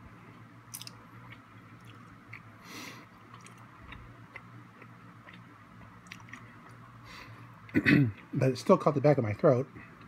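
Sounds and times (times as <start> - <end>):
faint chewing: 0.3 - 8.4.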